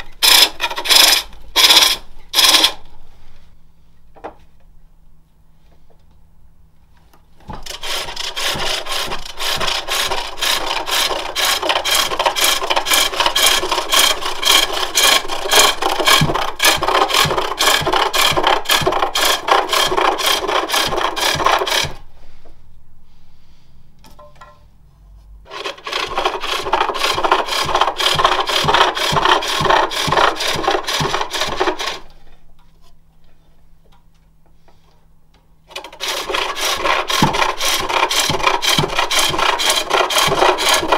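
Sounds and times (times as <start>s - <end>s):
lathe tool scraping wood: 0.0s - 2.8s, 7.6s - 22.1s, 25.5s - 32.2s, 35.7s - 40.9s.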